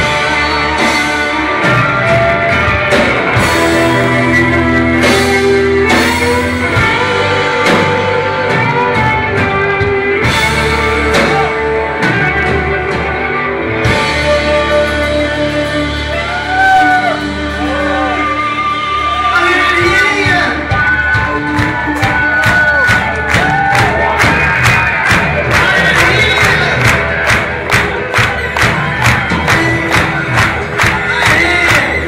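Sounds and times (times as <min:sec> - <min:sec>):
rock band playing live: 0:00.0 - 0:32.0.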